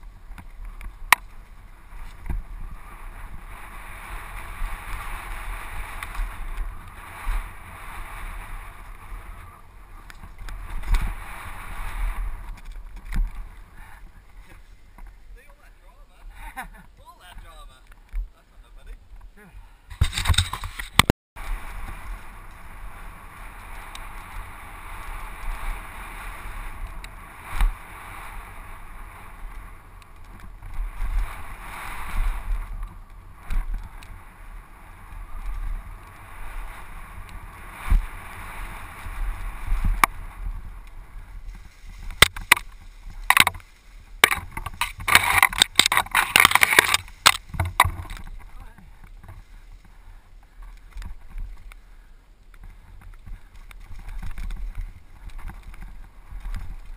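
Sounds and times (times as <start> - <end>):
tyre and wind noise: 0.0 - 56.9
bike rattles and knocks: 8.9 - 15.2, 19.2 - 25.5, 35.3 - 51.7, 52.5 - 56.9.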